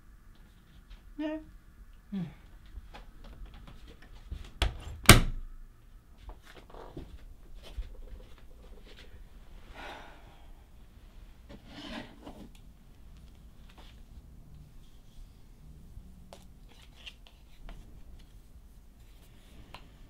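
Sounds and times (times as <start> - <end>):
soft footsteps: 2.5 - 4.6, 12.9 - 15.1
clothes and bedding rustling: 2.6 - 5.0
door shutting with thud: 4.6 - 5.4.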